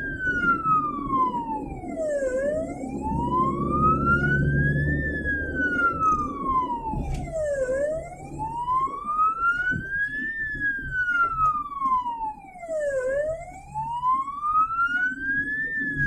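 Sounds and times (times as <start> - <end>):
ambulance siren wailing: 0.0 - 16.0
engine and road noise: 0.0 - 16.0.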